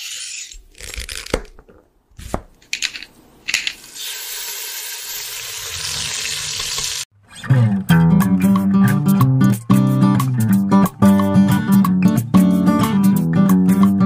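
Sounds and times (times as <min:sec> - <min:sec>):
steady sizzle: 0:03.9 - 0:07.1.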